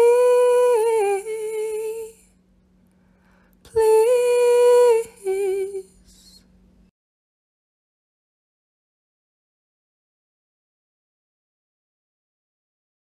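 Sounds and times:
woman humming a slow tune: 0.0s - 2.3s, 3.7s - 6.5s
faint low hum: 0.0s - 6.9s.

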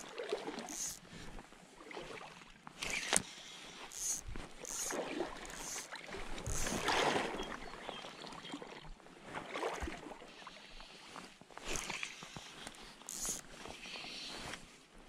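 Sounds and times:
water sloshing and splashing: 0.0s - 10.4s
short water swishes: 0.0s - 10.6s.

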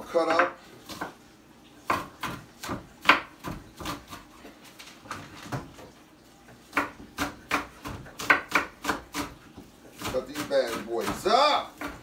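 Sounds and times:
knife chopping on wooden board: 0.2s - 1.2s, 1.8s - 4.4s, 6.7s - 12.0s.

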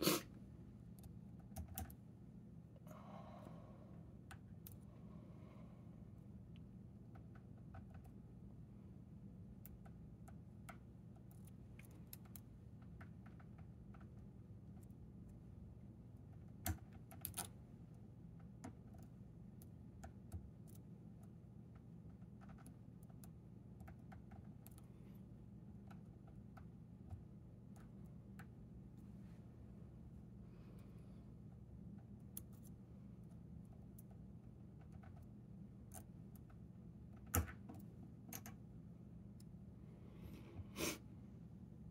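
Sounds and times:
low steady hum: 0.0s - 41.9s.

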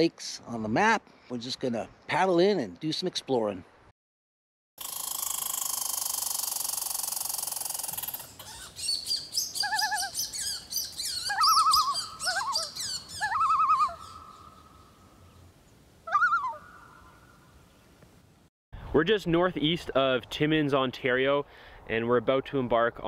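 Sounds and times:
birds calling and chirping: 5.7s - 17.8s.

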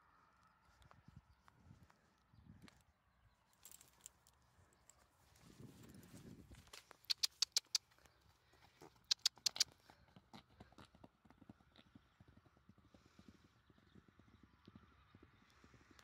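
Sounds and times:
sharp clicks: 7.0s - 7.9s, 9.1s - 9.7s
horse hoofbeats on mud: 7.1s - 7.8s, 9.0s - 12.0s.

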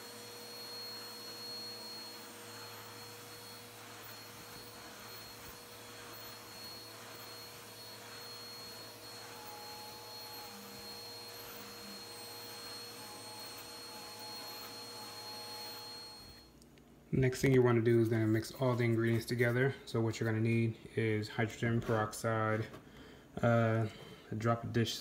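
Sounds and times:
stick vacuum motor whining: 0.0s - 16.6s.

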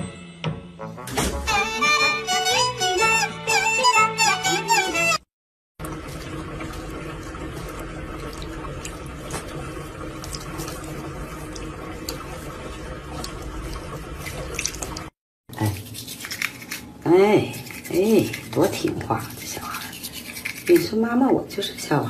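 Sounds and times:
water running from a tap: 5.8s - 21.9s.

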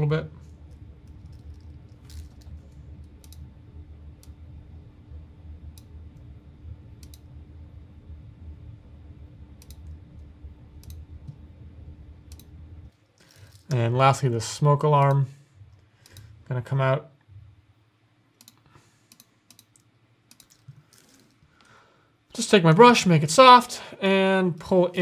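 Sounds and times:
low electrical hum: 0.0s - 25.0s
computer mouse clicking: 2.2s - 3.4s, 7.0s - 7.2s, 9.6s - 10.0s, 10.8s - 11.4s, 12.3s - 12.5s, 16.0s - 16.3s, 18.4s - 20.8s.

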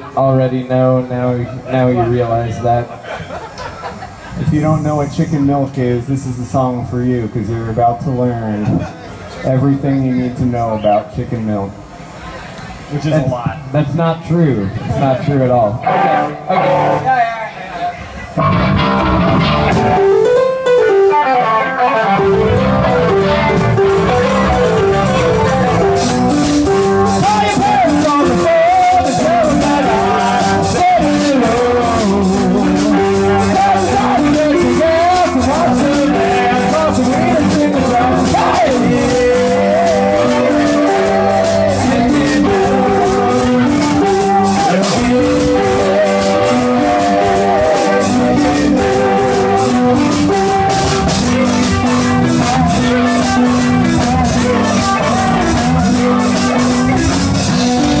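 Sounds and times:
keyboard: 14.0s - 58.0s
bass guitar: 14.8s - 17.1s, 18.3s - 58.0s
electric guitars: 14.8s - 17.2s, 18.0s - 58.0s
drum kit beat: 18.4s - 58.0s.

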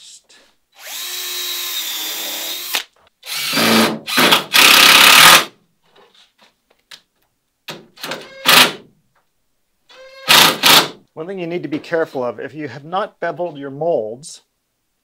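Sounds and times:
cordless drill driving screws: 0.8s - 5.5s, 10.1s - 10.9s.

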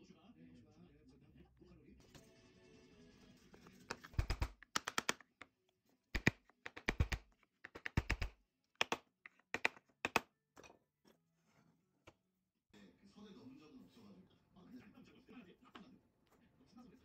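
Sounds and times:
wooden parts clicking and tapping: 3.9s - 5.6s, 6.2s - 10.8s.

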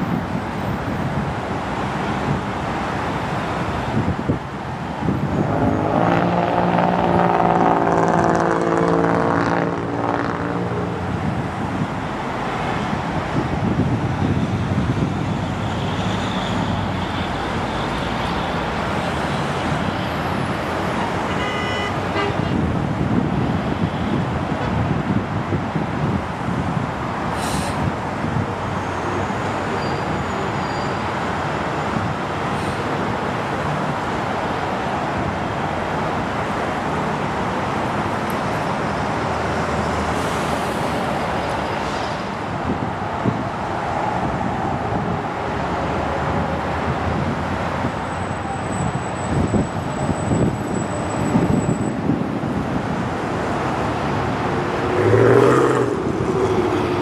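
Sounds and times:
jet engines rushing: 54.0s - 57.0s.

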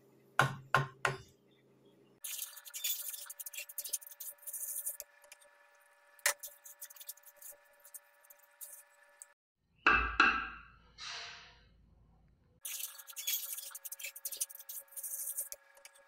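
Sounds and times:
spatula scraping flour in pot: 2.2s - 5.1s, 6.3s - 9.0s, 12.7s - 15.6s.

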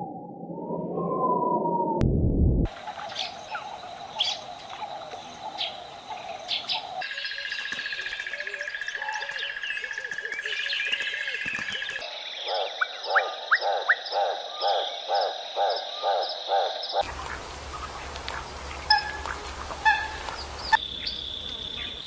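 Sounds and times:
birds chirping and calling: 2.7s - 22.0s
frogs croaking: 2.7s - 22.0s
sharp rising calls: 17.0s - 22.0s.

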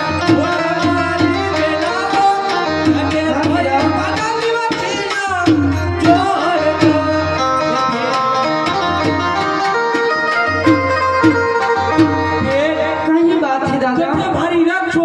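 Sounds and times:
man singing with ornamented notes: 0.0s - 8.8s, 12.2s - 15.0s
hand drum beating: 0.0s - 12.8s
keyboard held notes: 0.0s - 13.7s.

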